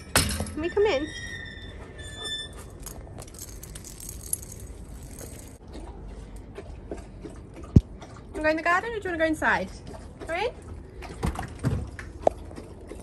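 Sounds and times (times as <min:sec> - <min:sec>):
metallic jingling: 0:02.2 - 0:05.6
rustling: 0:02.5 - 0:05.6.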